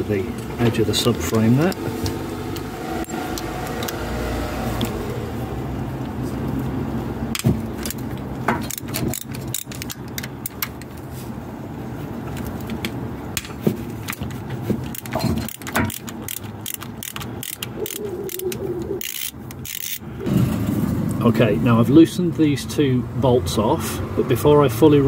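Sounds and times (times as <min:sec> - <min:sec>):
socket ratchet clicking: 0:02.5 - 0:04.0, 0:07.8 - 0:10.9, 0:14.0 - 0:20.0.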